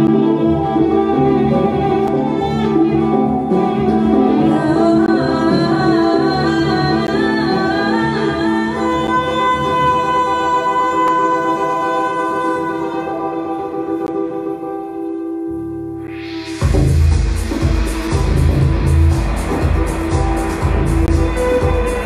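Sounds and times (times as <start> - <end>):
woman singing into microphone: 1.9 - 14.3.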